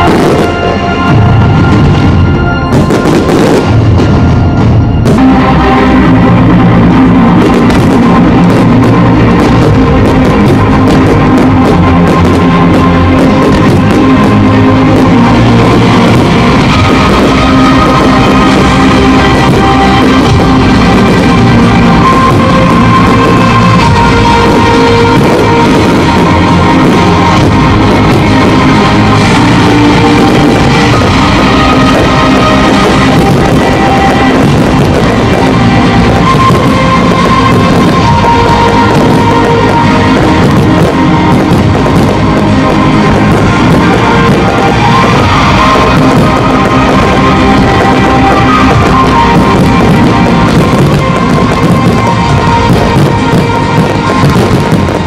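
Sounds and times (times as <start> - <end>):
loud rock music: 0.0 - 55.0.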